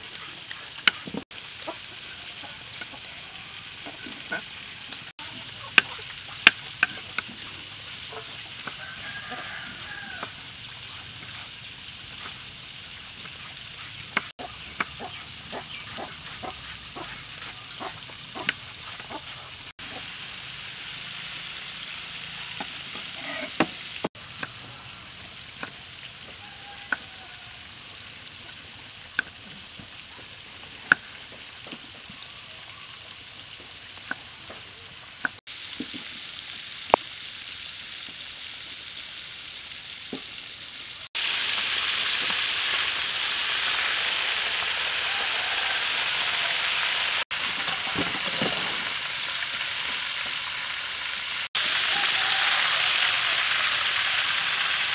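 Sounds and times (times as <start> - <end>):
hot oil sizzling: 0.0 - 54.9.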